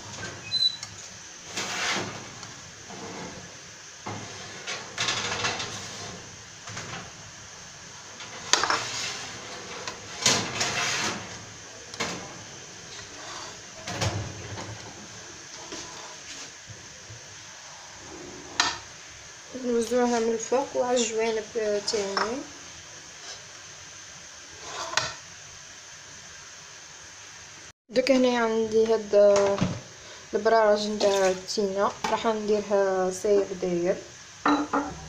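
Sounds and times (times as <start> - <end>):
spatula scraping a plate: 1.5 - 2.2, 8.2 - 11.4, 12.9 - 13.7, 15.5 - 16.5, 24.6 - 25.2.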